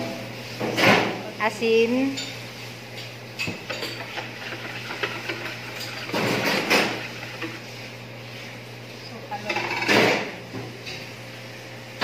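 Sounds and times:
wire whisk beating batter: 0:03.6 - 0:07.9.

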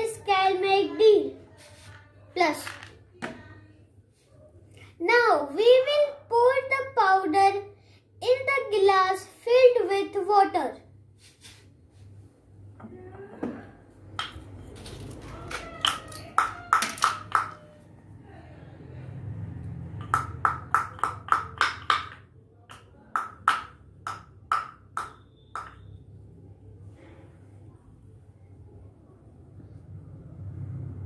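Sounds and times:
pestle knocking in wooden mortar: 0:20.0 - 0:25.9.

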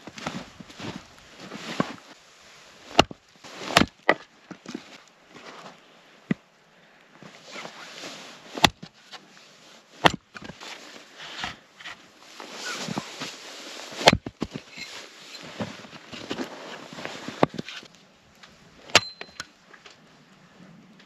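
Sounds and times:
boots crunching in snow: 0:00.0 - 0:02.2, 0:02.8 - 0:05.8, 0:10.5 - 0:17.9
axe splitting logs: 0:02.9 - 0:04.8, 0:08.6 - 0:09.0, 0:10.0 - 0:10.6, 0:13.9 - 0:14.6, 0:18.8 - 0:19.5.

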